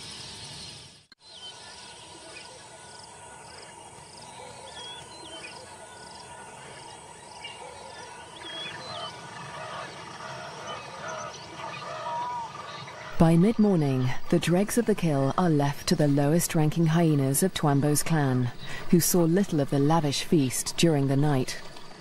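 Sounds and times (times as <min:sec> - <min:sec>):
lower bird calls: 0:01.2 - 0:13.2.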